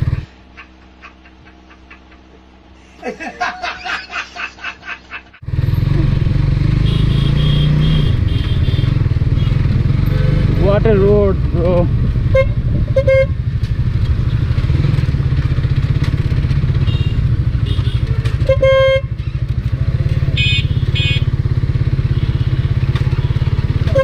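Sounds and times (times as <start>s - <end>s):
motorcycle engine at low revs: 0.0s - 1.5s, 5.4s - 24.0s
horn beeps: 6.8s - 10.5s, 12.2s - 13.4s, 16.8s - 19.2s, 20.3s - 21.4s.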